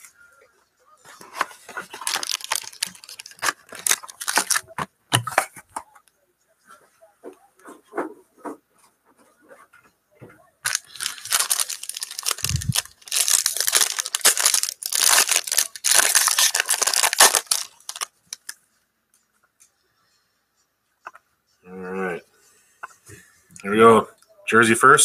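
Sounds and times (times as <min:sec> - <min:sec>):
foil wrapper tearing and crinkling: 0:01.6 - 0:04.8, 0:10.6 - 0:18.5.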